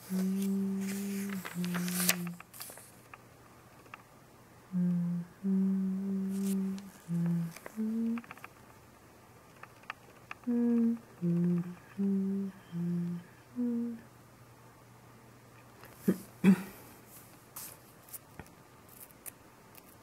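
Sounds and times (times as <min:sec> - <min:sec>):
person humming a tune: 0:00.0 - 0:02.4, 0:04.7 - 0:08.3, 0:10.4 - 0:14.1.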